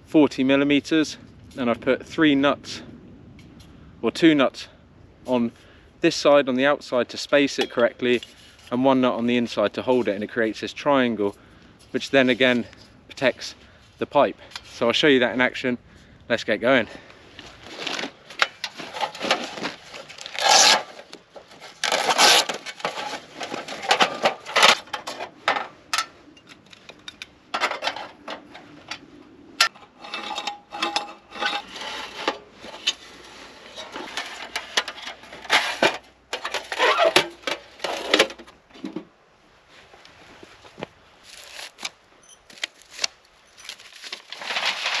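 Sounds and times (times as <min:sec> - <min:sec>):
thin metal panels scraping and rubbing: 0:17.7 - 0:38.5, 0:43.8 - 0:45.0.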